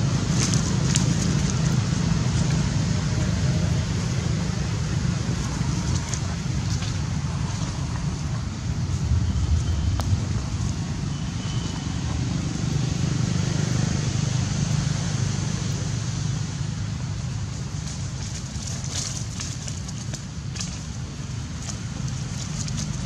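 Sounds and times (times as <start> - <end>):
low outdoor rumble: 0.0 - 23.0.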